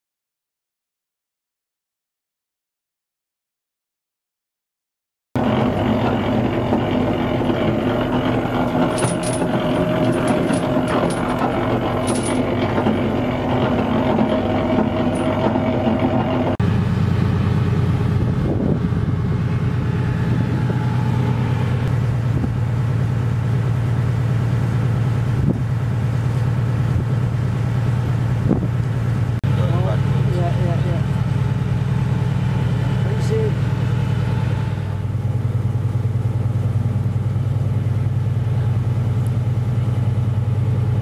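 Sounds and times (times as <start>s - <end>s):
boat engine droning: 5.4s - 41.0s
anchor chain clinking: 8.2s - 13.0s, 14.7s - 15.6s.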